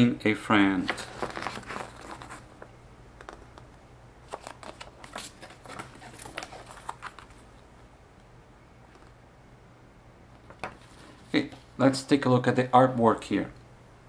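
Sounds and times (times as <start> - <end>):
paper pages rustling: 0.8 - 3.4, 4.2 - 7.5.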